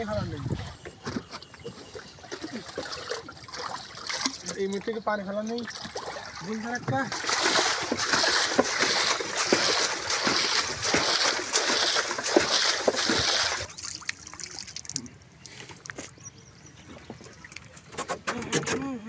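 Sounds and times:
water splashing from bailing: 1.6 - 15.6.

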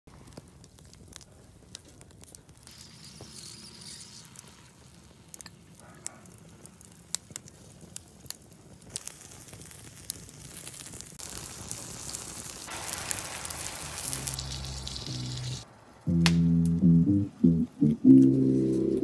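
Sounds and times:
sizzling hiss: 0.1 - 19.0
wood fire crackling: 0.1 - 19.0.

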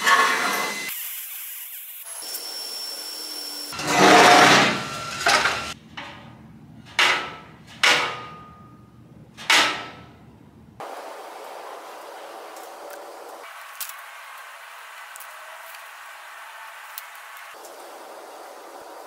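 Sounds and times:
hammer striking steel: 3.8 - 8.8, 9.4 - 10.2
metal scraping clatter: 3.8 - 8.8.

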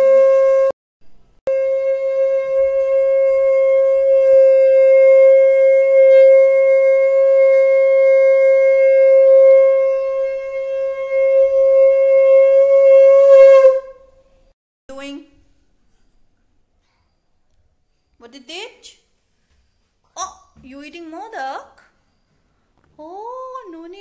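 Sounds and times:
conch shell blown: 0.0 - 0.7, 1.5 - 14.2.

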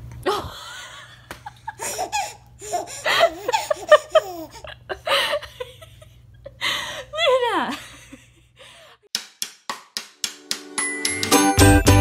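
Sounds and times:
hearty laughter: 3.0 - 6.6.

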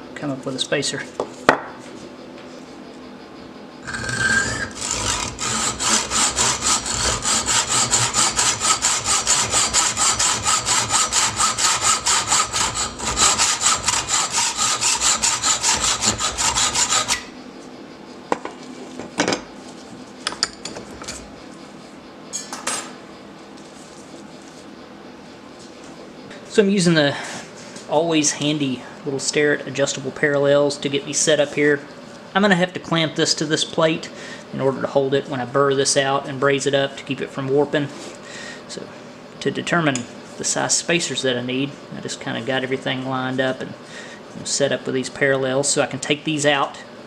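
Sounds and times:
hacksaw cutting metal rod: 3.8 - 17.3.

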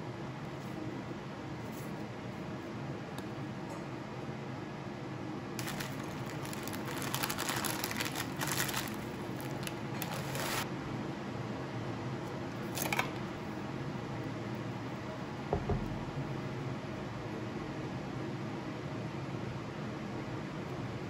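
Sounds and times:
muesli pouring from plastic bag: 5.6 - 10.6.

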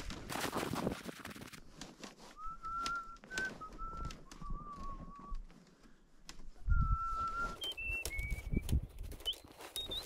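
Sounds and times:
whistled notes: 2.4 - 5.5, 6.6 - 10.0.

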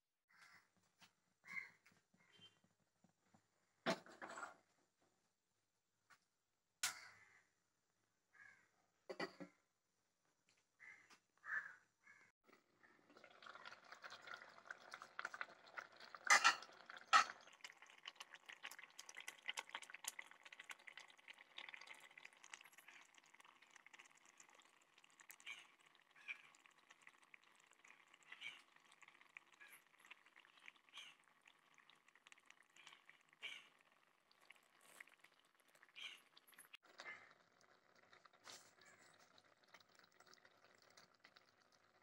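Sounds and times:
gravy simmering and bubbling: 12.5 - 42.0.

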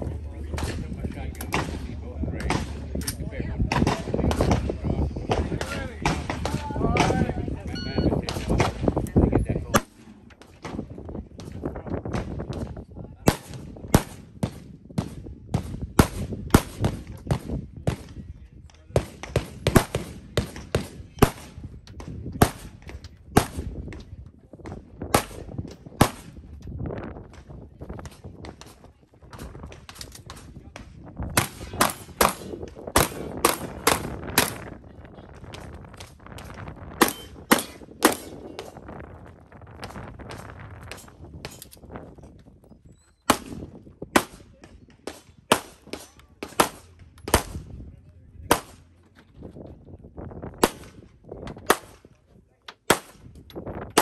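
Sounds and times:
sharp gunshots: 0.5 - 3.0, 3.7 - 7.3, 9.7 - 11.5, 13.2 - 18.2, 19.0 - 21.6, 22.4 - 23.8, 25.1 - 26.4, 31.3 - 34.8, 37.0 - 38.7, 43.3 - 47.8, 48.5 - 48.9, 50.6 - 52.0, 52.9 - 53.3
pistol shots: 31.4 - 34.7, 37.0 - 38.4, 43.3 - 47.7, 48.5 - 48.9, 50.6 - 51.0, 51.7 - 52.0, 52.9 - 53.2.

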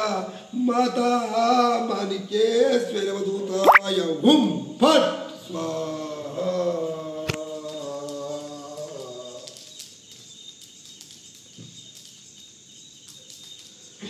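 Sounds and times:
background hiss: 0.0 - 14.0.

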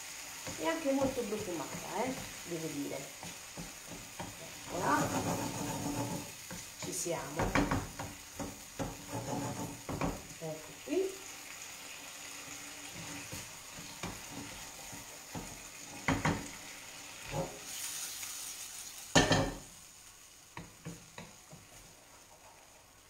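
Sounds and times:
oats sizzling in a frying pan: 0.0 - 23.0
wooden spoon knocking a pan: 3.0 - 10.4, 12.9 - 16.6, 19.1 - 19.7.

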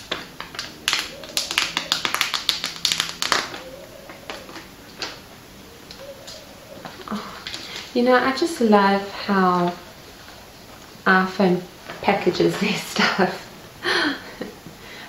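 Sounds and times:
plastic wrap crinkling: 0.0 - 5.2.

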